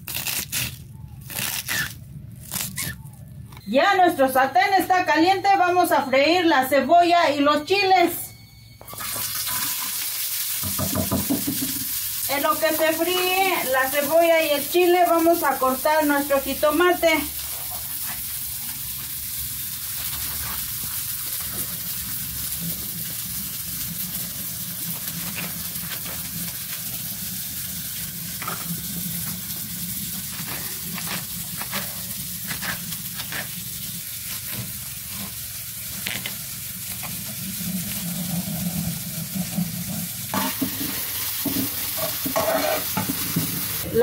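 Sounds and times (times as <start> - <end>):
vegetables sizzling in oil: 8.9 - 44.0.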